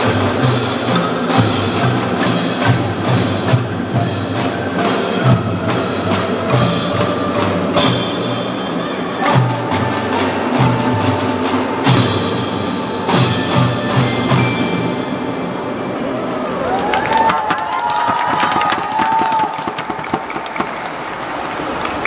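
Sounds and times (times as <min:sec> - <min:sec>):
marimbas and xylophones: 0:00.0 - 0:15.6.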